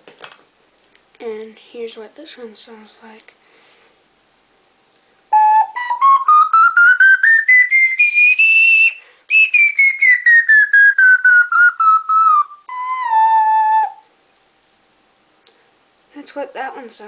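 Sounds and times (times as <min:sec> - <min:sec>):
ocarina playing a scale: 0:05.3 - 0:14.1.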